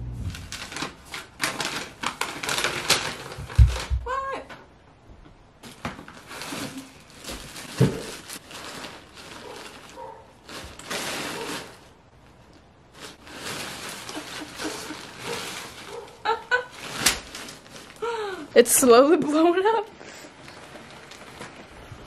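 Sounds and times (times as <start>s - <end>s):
packaging rustling and crinkling: 0.3s - 4.1s, 5.6s - 22.0s
nylon fabric rustling: 5.6s - 22.0s.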